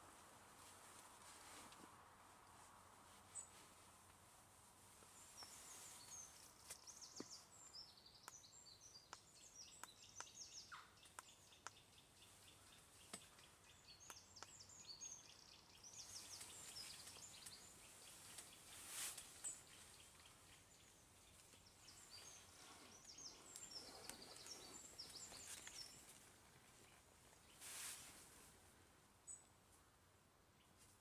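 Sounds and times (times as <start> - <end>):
low steady hiss: 0.0 - 31.0
birds chirping and trilling: 5.4 - 26.2.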